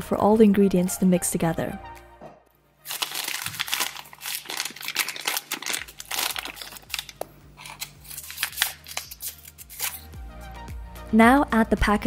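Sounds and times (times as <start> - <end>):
plastic bag crinkling: 2.8 - 10.0.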